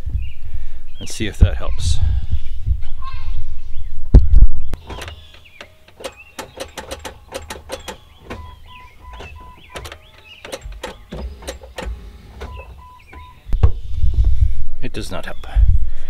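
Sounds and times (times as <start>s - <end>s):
car starter clicking: 4.8s - 13.6s.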